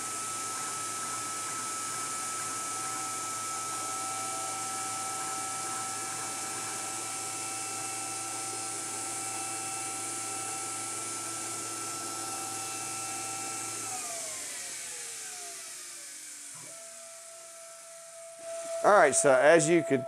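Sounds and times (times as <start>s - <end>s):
router spindle whine: 0.0s - 20.0s
dust collector hiss: 18.8s - 20.0s.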